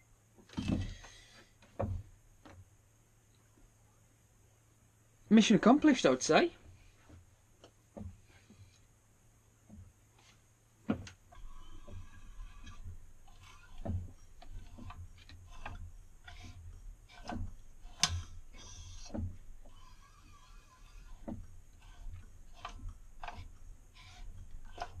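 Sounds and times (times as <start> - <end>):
faint squeaks: 11.2 - 25.0.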